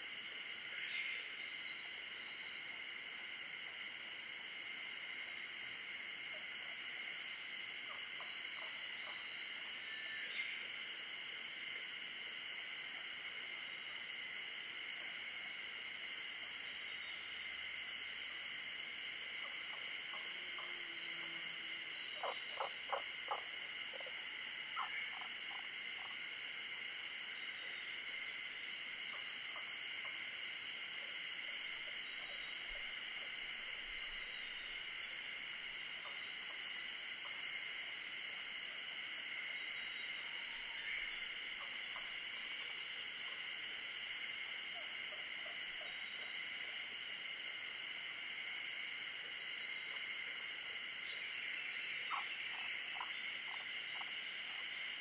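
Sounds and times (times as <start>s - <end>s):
chorus of calling animals: 12.4s - 55.0s.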